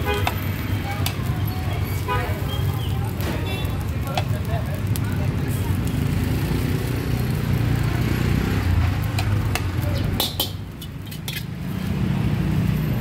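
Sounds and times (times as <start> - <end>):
utensils clinking against pans: 9.2 - 11.6.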